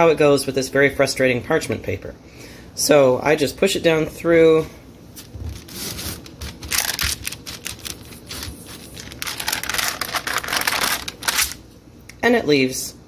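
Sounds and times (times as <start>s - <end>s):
parchment paper crinkling: 5.2s - 11.6s.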